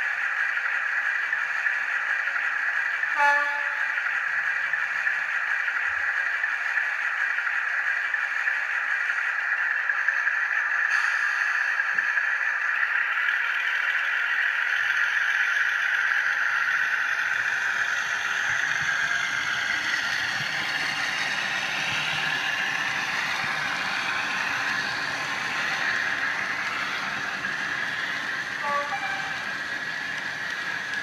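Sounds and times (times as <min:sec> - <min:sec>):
wheels rattling on rails: 0:00.0 - 0:31.0
model train motor whine: 0:14.8 - 0:31.0.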